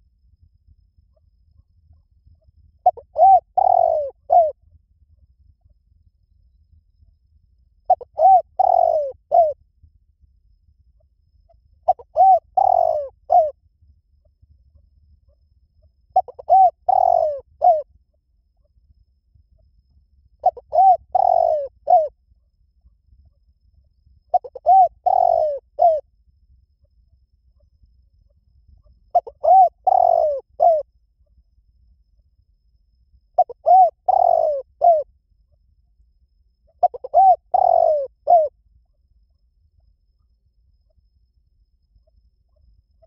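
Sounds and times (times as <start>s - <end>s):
dove cooing: 1.1s - 4.6s, 7.9s - 9.6s, 11.5s - 13.6s, 16.1s - 17.9s, 20.4s - 22.2s, 24.3s - 26.0s, 28.8s - 30.9s, 33.4s - 35.1s, 36.7s - 39.0s.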